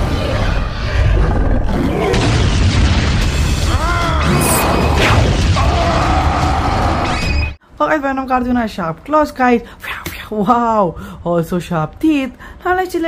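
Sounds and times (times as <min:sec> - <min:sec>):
action soundtrack music: 0:00.0 - 0:07.6.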